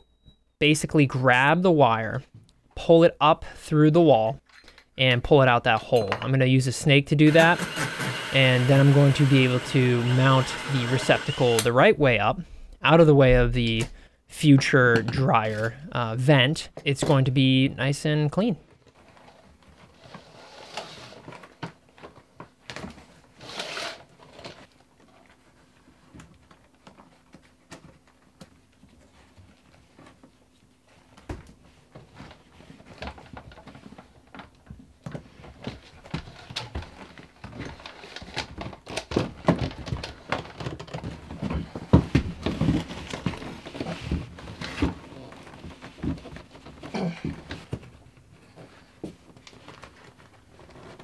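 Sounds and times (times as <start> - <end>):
fish tape scraping in wall: 19.9 - 21.5, 23.3 - 24.7.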